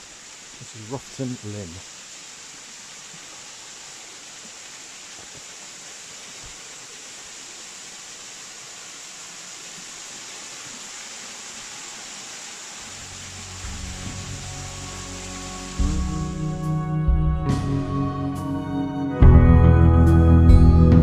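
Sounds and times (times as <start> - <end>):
waterfall splashing into pool: 0.0 - 16.5.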